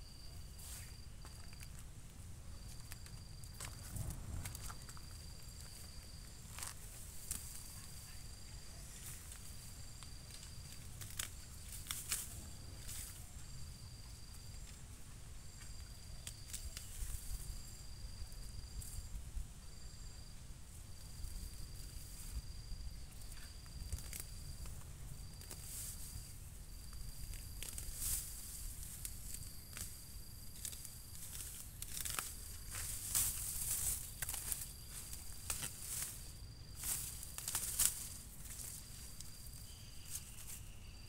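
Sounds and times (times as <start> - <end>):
rustles and snaps of plant stems: 0.5 - 1.9, 2.6 - 8.0, 9.0 - 13.6, 15.5 - 17.6, 23.1 - 40.8
insect trilling: 21.1 - 41.0.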